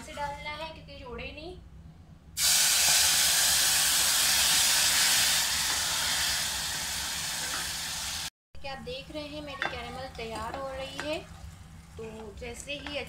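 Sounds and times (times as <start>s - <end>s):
loud hiss of steam: 2.4s - 8.3s.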